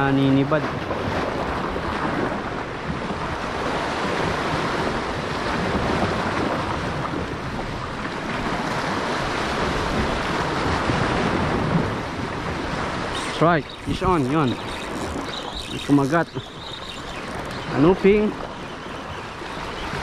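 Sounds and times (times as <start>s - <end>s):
surf washing against rocks: 0.0s - 20.0s
wind on microphone: 0.0s - 20.0s.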